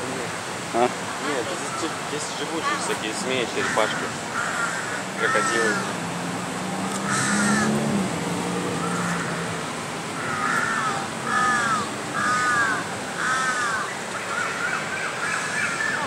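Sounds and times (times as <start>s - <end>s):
bird calling harshly: 3.6s - 5.9s, 10.2s - 16.0s.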